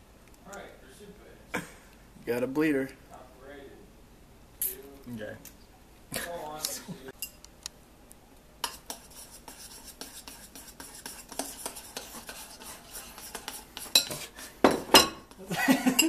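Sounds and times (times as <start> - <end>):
spoons clinking on ceramic bowls: 13.8 - 16.0.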